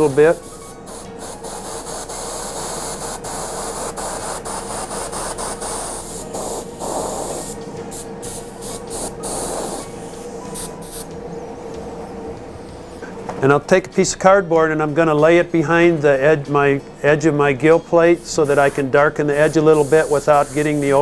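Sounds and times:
airbrush spraying air hiss: 0:00.0 - 0:11.2, 0:18.1 - 0:21.0
steady hum: 0:00.0 - 0:21.0.

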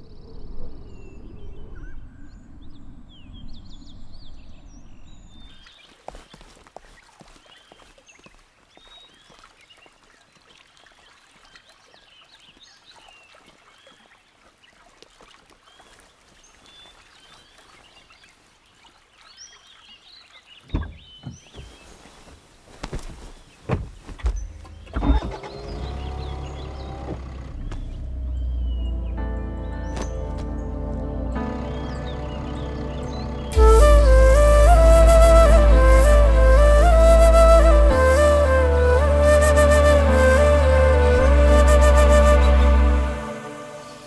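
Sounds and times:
birds chirping: 0:00.0 - 0:14.2, 0:15.7 - 0:44.0
car door clunks: 0:20.7 - 0:21.7
car engine starting and idling: 0:24.6 - 0:34.8.

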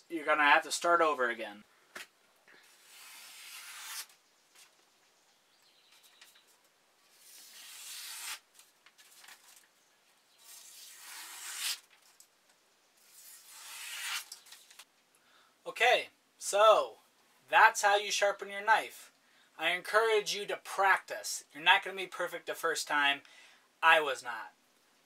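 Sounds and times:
knife slicing through paper: 0:02.6 - 0:04.2, 0:07.1 - 0:09.6, 0:10.4 - 0:11.9, 0:13.0 - 0:14.7.

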